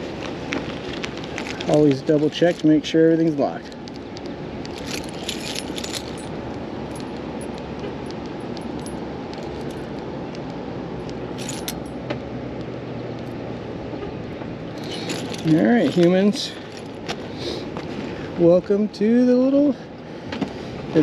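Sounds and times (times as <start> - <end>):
metal clips clicking and jingling: 1.6 - 10.4, 11.0 - 12.1, 14.7 - 17.1.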